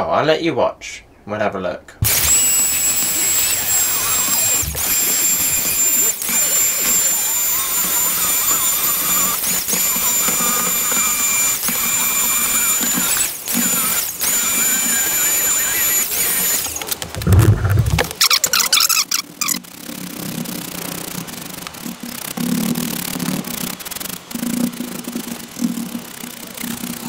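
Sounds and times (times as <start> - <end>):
handheld vacuum cleaner whining: 2.0 - 19.6
low thump: 17.2 - 18.1.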